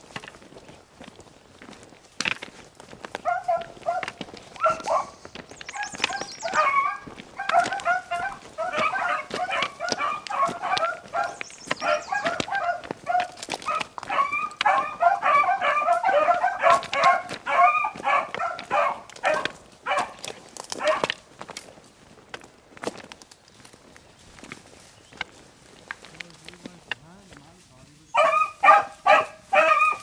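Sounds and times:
pack of hounds baying: 0:03.1 - 0:21.2, 0:28.0 - 0:30.0.

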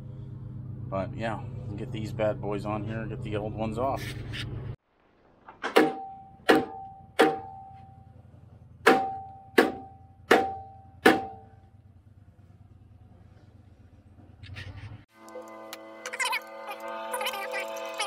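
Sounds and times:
hammer striking steel wheel: 0:05.6 - 0:08.0, 0:08.8 - 0:11.6.

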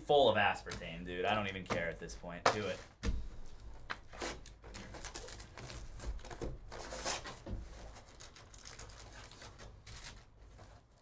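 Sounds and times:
plastic wrap crinkling: 0:02.6 - 0:11.0.

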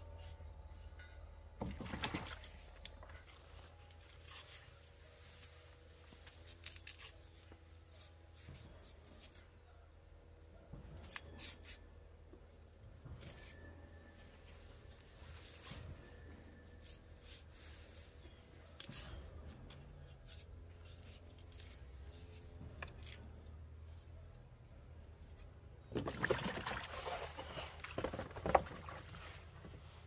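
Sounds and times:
handling rustles and scrapes: 0:00.0 - 0:09.7, 0:10.7 - 0:11.9, 0:13.0 - 0:25.6, 0:26.9 - 0:30.0.

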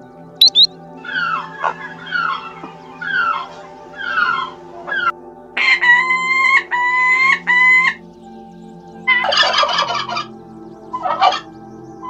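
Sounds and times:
long even-pitched calls: 0:00.4 - 0:05.1
turkey gobbling: 0:00.4 - 0:05.1, 0:09.2 - 0:10.3, 0:11.0 - 0:11.4.

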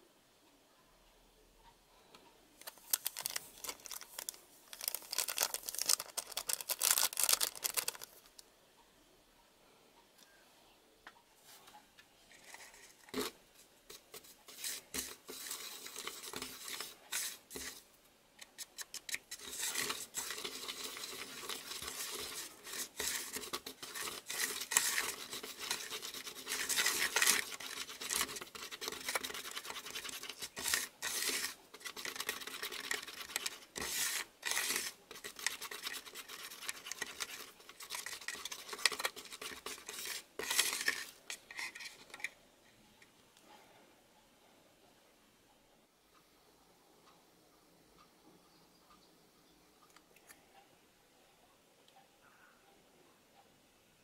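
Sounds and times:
stick scraping plastic tray: 0:12.4 - 0:17.8, 0:18.4 - 0:42.3.

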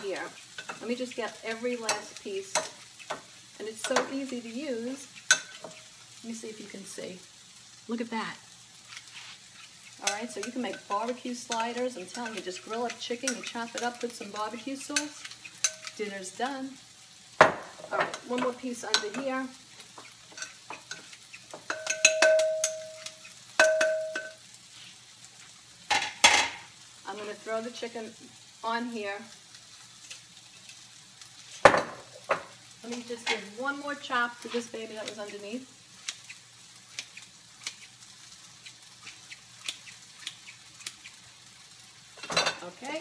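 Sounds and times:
blades clicking on pan: 0:00.0 - 0:07.8, 0:08.7 - 0:24.5, 0:29.2 - 0:43.0
food sizzling in grill pan: 0:00.0 - 0:43.0
blades ringing against glass bowl: 0:21.7 - 0:24.4.

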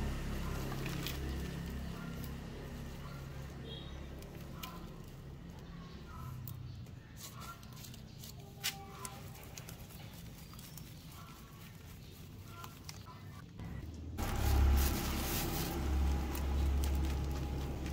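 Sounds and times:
hands rubbing compost on basket: 0:07.0 - 0:13.2, 0:14.2 - 0:17.9
soil crumbs ticking on tiles: 0:15.7 - 0:17.9.

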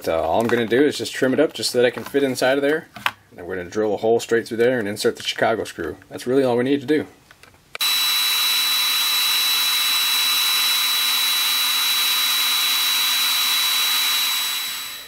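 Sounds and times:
electric drill whining: 0:07.8 - 0:15.0.

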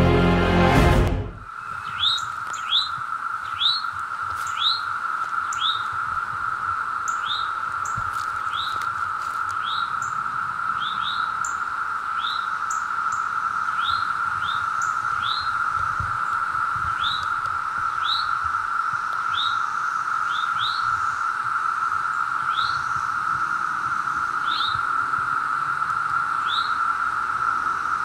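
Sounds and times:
cicadas droning: 0:01.4 - 0:28.0
bird chirping: 0:01.5 - 0:05.8.

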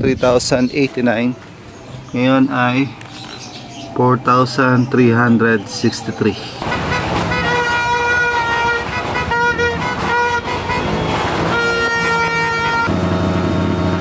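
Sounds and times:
low buzzy horn: 0:06.6 - 0:14.0
vehicle horns honking: 0:06.6 - 0:14.0.

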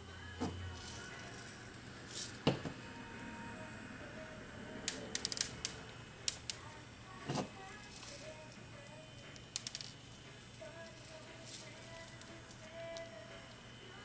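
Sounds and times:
sugar pearls clicking: 0:04.9 - 0:06.6, 0:09.4 - 0:10.0.

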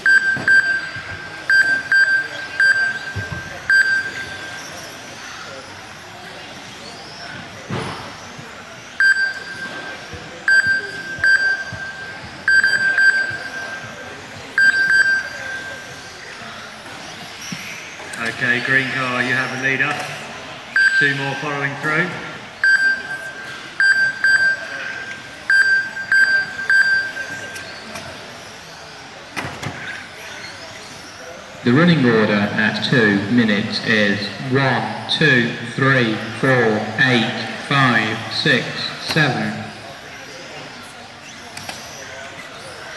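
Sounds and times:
race timing system beeping: 0:00.0 - 0:05.6, 0:08.2 - 0:16.2, 0:20.7 - 0:21.9, 0:22.6 - 0:28.9
electric rc cars running: 0:00.4 - 0:22.6, 0:26.5 - 0:33.4, 0:35.7 - 0:42.9
timing system chimes: 0:22.6 - 0:27.8.

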